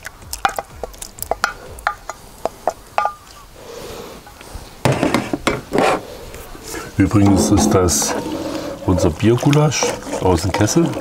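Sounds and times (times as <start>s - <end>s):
wooden spoon stirring in a pot: 6.7s - 11.0s.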